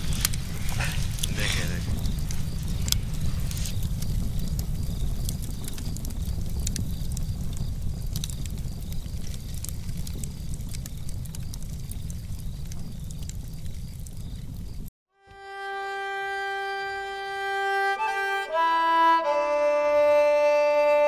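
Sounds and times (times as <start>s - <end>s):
steady low rumble: 0.0s - 14.9s
wood fire crackling: 0.0s - 14.9s.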